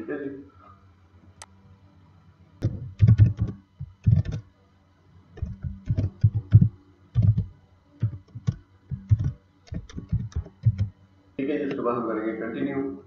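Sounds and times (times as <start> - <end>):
typing on computer keyboard: 2.6 - 4.4, 5.4 - 10.9.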